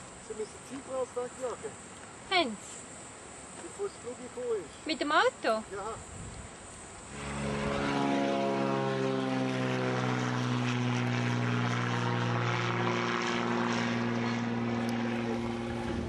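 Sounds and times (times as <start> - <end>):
propeller plane engine drone: 6.4 - 16.0.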